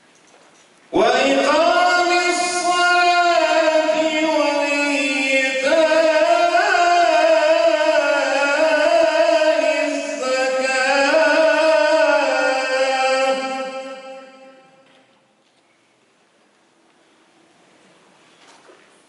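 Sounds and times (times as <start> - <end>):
man reciting melodically: 0.9 - 14.8.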